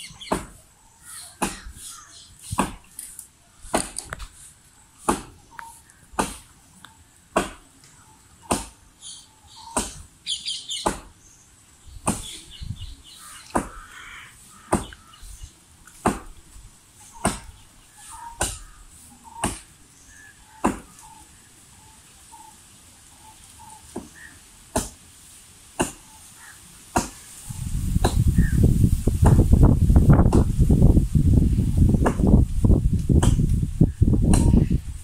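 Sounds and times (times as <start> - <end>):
birds chirping: 0.0 - 24.4, 26.0 - 28.7
chopping blows into palm trunk: 2.5 - 2.9, 5.0 - 5.4, 6.2 - 6.5, 7.3 - 7.6, 12.0 - 12.4, 16.0 - 16.4, 19.4 - 19.7, 20.6 - 20.9, 26.9 - 27.2, 29.2 - 29.4, 30.2 - 30.5, 32.0 - 32.4, 33.1 - 33.6.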